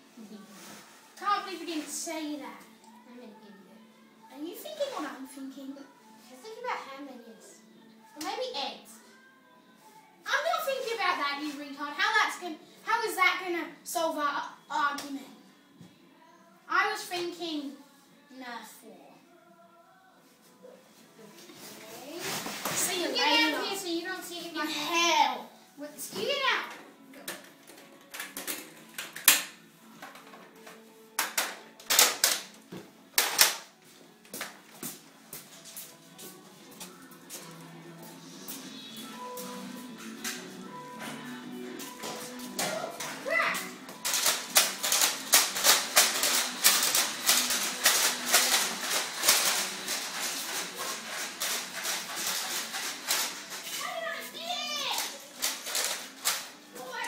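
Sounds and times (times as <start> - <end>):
faint music: 0.0 - 57.0
toy blasters clacking and snapping: 31.2 - 32.5, 33.2 - 33.7, 44.0 - 53.7, 55.0 - 56.5.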